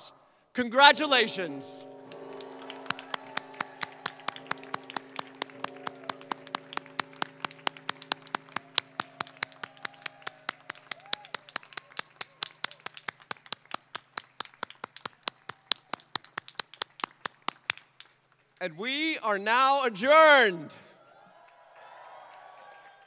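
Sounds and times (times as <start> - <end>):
hands clapping: 2.1 - 18.6.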